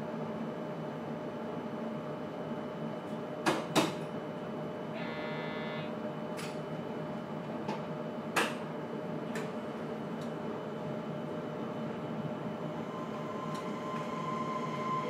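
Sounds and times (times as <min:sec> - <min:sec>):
short pitched buzz: 0:05.0 - 0:05.9
train equipment hum: 0:11.8 - 0:15.0.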